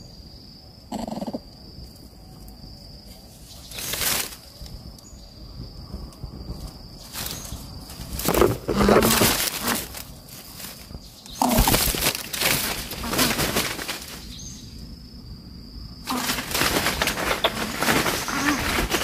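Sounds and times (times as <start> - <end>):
dry leaves rustling and crackling: 3.4 - 4.8, 6.6 - 14.8, 16.0 - 19.0.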